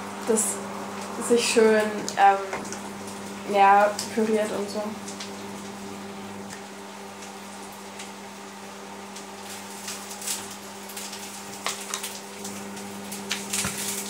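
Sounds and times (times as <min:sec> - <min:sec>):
steady low hum: 0:00.0 - 0:14.0
tofu sizzling in a pan: 0:07.1 - 0:14.0.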